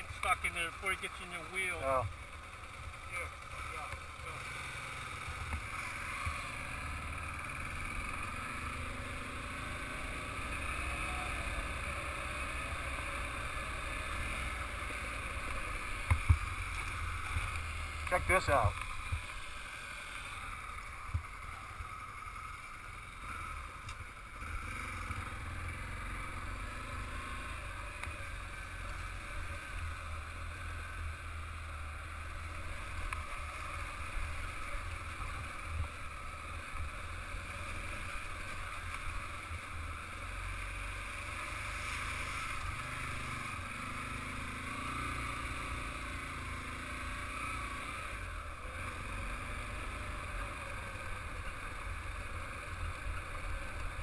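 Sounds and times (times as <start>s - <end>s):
dirt motorcycle running: 0.0s - 54.0s.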